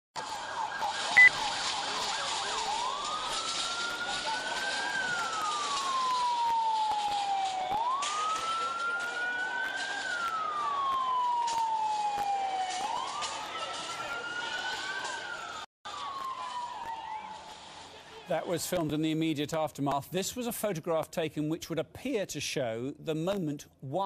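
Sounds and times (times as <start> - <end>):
siren wailing: 0.2 - 17.7
street noise: 0.2 - 24.0.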